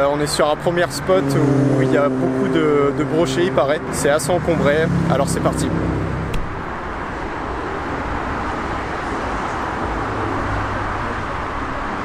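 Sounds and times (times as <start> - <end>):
road traffic roar: 0.0 - 12.0.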